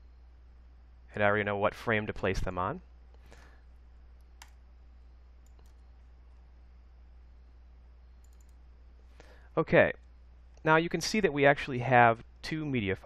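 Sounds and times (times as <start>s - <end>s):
steady low hum: 0.0s - 13.0s
computer mouse clicks: 4.2s - 4.6s, 5.4s - 5.9s, 8.2s - 8.6s.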